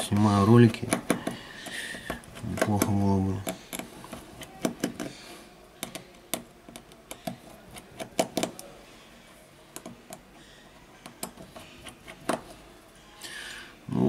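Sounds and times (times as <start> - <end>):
screwdriver clicking on plastic frame: 0.0 - 5.1, 5.8 - 8.7.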